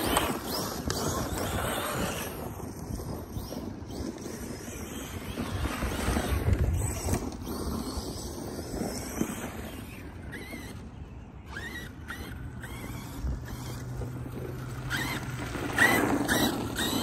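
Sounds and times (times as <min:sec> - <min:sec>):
rc truck motor and tyres: 0:00.0 - 0:17.0
wind on microphone: 0:00.0 - 0:17.0.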